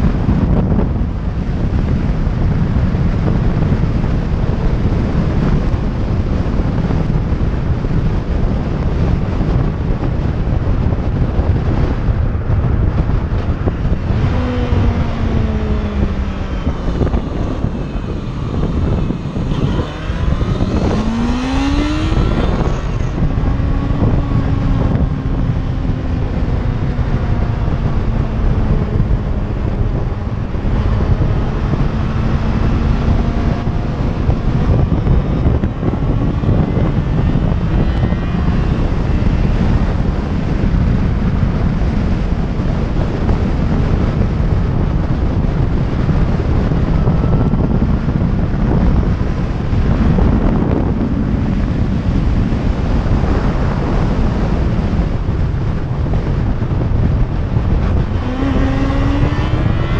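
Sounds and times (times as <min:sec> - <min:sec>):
motorcycle engine running: 0:00.0 - 0:59.9
wind buffeting microphone: 0:00.0 - 0:59.9.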